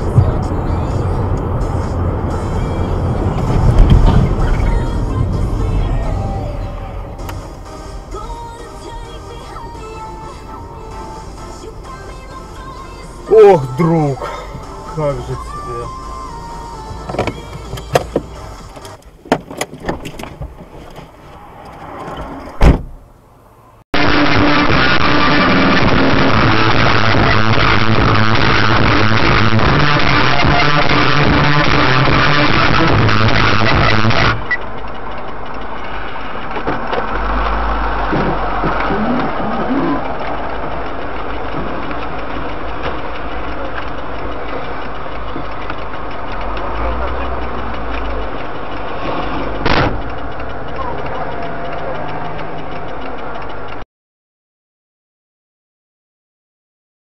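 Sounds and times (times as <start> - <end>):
low hum: 0.0 - 18.8
car engine idling: 0.0 - 21.2, 22.9 - 53.8
loud deep thump: 3.4 - 4.5, 22.6 - 23.0, 49.6 - 50.0
sharp clicks and knocks: 17.0 - 23.0, 26.9 - 53.8.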